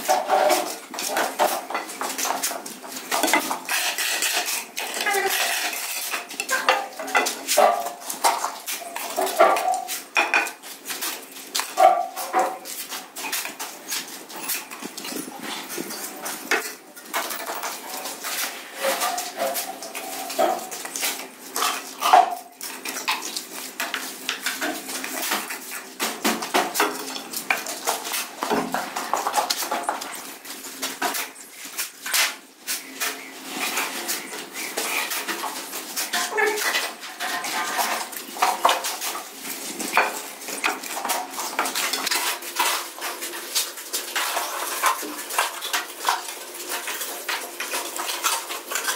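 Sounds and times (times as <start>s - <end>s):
shovel scraping on cement floor: 0.0s - 6.6s, 27.5s - 45.6s.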